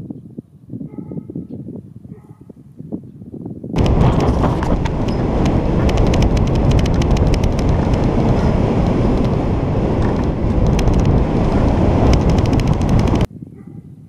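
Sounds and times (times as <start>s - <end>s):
wind buffeting camera: 0.0s - 14.0s
sharp clicks: 3.8s - 13.3s.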